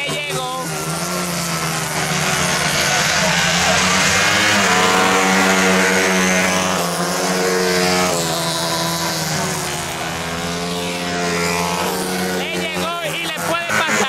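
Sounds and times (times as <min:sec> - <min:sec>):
racing motorcycle engines: 0:00.0 - 0:14.0.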